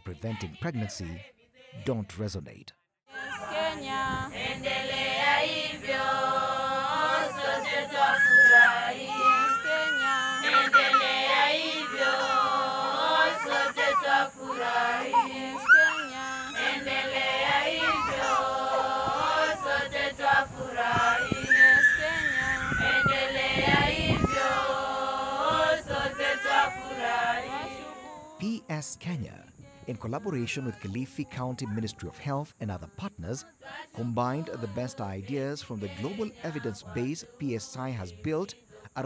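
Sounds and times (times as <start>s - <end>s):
group singing in unison: 3.1s - 28.4s, 33.6s - 37.6s.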